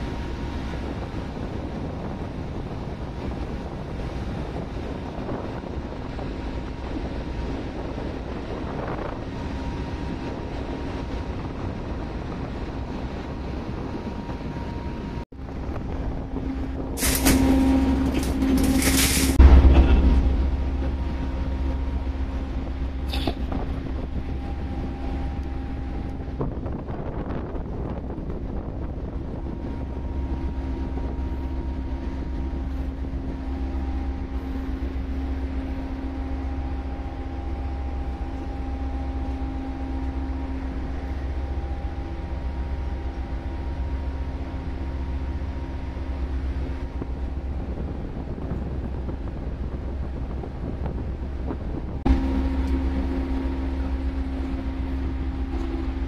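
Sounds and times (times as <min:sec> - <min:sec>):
ship machinery drone: 0:00.0 - 0:56.0
faint steady tones: 0:19.4 - 0:50.2, 0:50.8 - 0:56.0.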